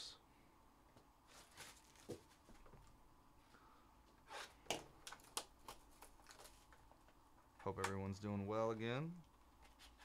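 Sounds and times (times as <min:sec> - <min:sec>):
cardboard rustling: 0:01.3 - 0:02.9.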